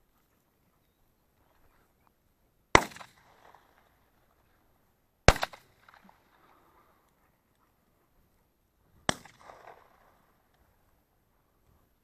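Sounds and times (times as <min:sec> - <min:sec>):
shotgun shots: 0:02.7 - 0:03.7, 0:05.3 - 0:06.1, 0:09.0 - 0:10.2.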